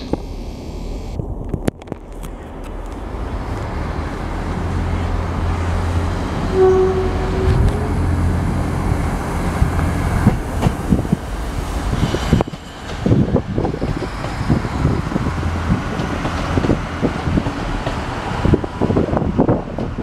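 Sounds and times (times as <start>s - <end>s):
diesel train engine rumble: 0.0s - 20.0s
brief steady tone: 6.6s - 7.9s
train wheels clicking over rail joints: 8.4s - 20.0s.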